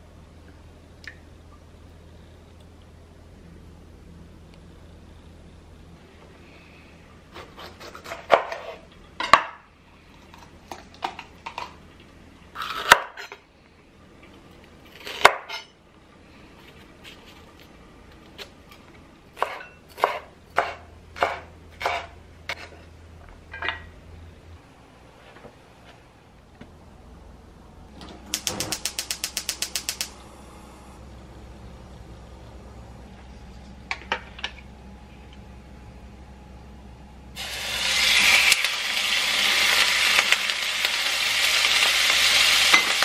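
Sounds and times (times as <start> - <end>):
knife chopping on wooden board: 19.4 - 22.6.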